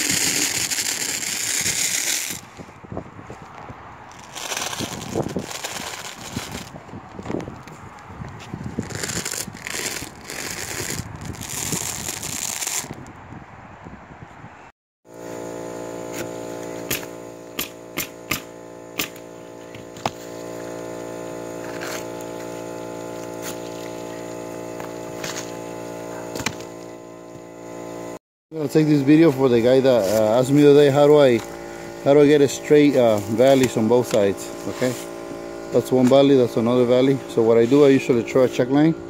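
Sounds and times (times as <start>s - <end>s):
steady machine hum: 15.1s - 39.0s.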